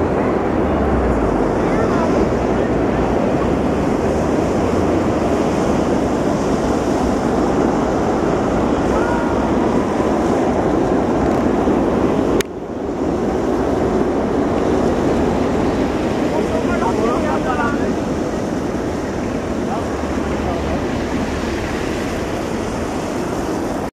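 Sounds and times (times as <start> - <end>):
jet engines roaring: 0.0 - 23.9.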